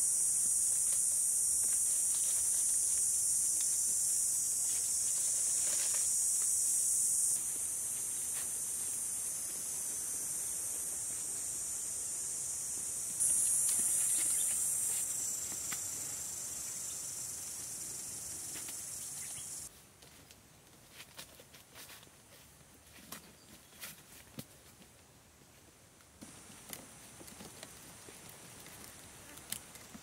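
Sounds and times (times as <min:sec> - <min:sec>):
high-pitched insect drone: 0:00.0 - 0:19.7.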